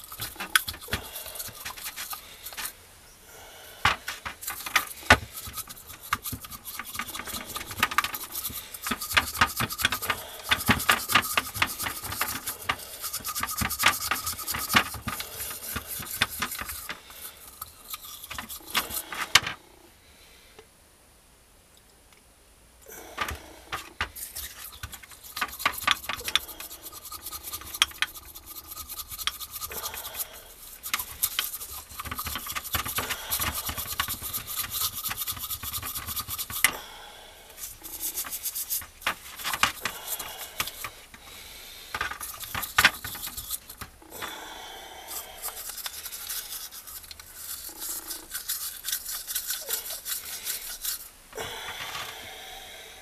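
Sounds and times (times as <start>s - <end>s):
hand tool scraping metal: 0.0s - 2.8s, 3.8s - 19.6s, 23.1s - 36.9s, 37.5s - 52.2s.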